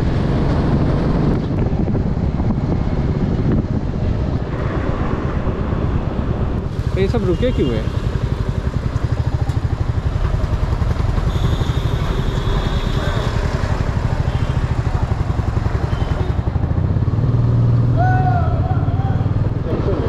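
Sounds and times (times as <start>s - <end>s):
motorcycle engine idling: 7.9s - 17.0s.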